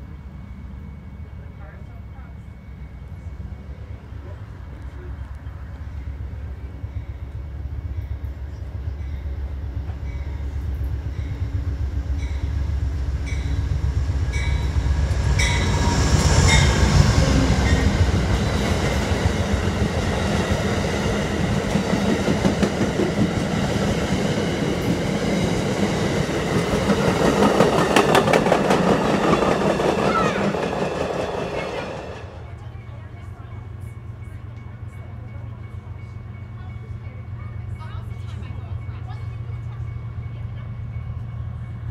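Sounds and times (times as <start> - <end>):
diesel locomotive rumbling past: 0.0 - 41.9
train wheels clattering over rail joints: 21.4 - 31.6.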